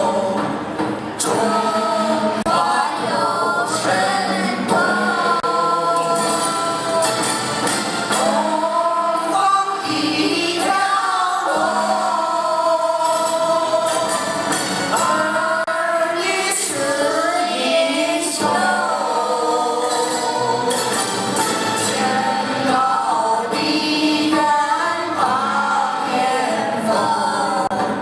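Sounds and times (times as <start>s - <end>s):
children singing in unison: 0.0s - 28.0s.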